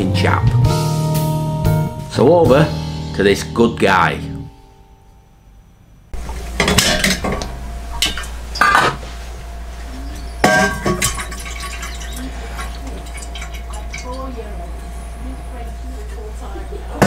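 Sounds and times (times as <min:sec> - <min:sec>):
steady low hum: 0:04.1 - 0:17.0
metal kettle clanking on hob: 0:06.5 - 0:09.0, 0:10.4 - 0:12.2.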